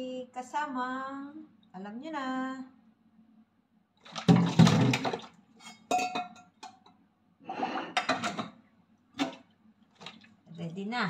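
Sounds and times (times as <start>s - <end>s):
plastic container clattering: 4.1s - 5.3s.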